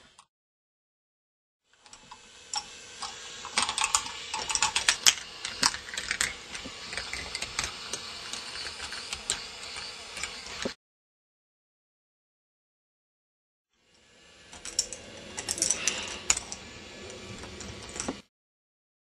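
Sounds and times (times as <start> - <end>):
plastic balls clattering on tracks: 3.0 - 10.4.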